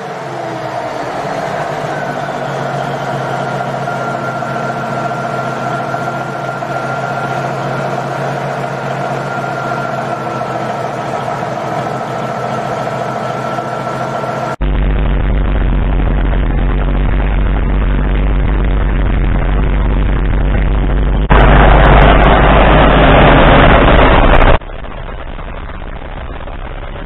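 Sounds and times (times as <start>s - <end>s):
diesel engine idling: 0.0s - 27.0s
steady high whine: 0.0s - 27.0s.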